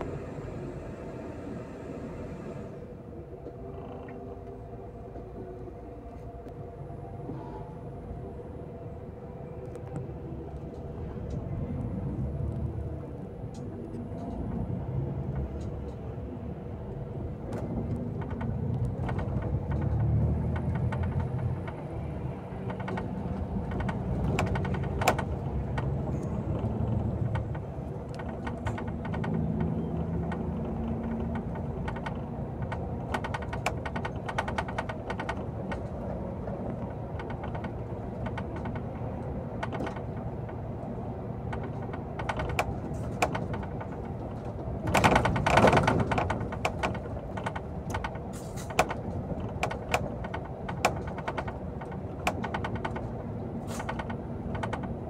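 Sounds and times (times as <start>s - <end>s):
vehicle engine running: 0.0s - 55.0s
clicks and rattles: 22.6s - 55.0s.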